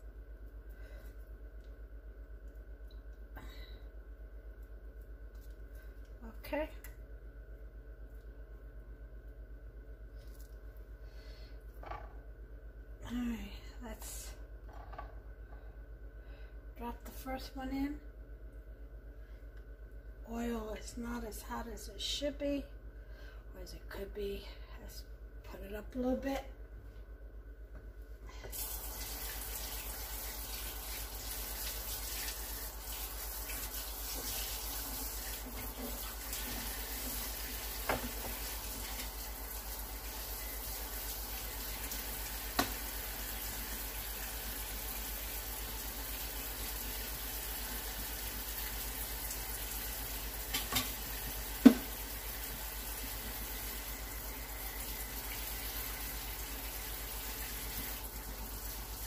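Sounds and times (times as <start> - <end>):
oil sizzling in pan: 28.5 - 59.0.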